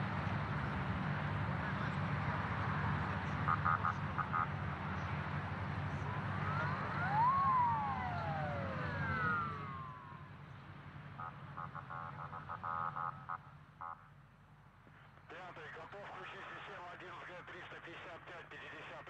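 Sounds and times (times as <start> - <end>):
siren-like wails: 5.8 - 13.0
low hum: 5.9 - 11.9.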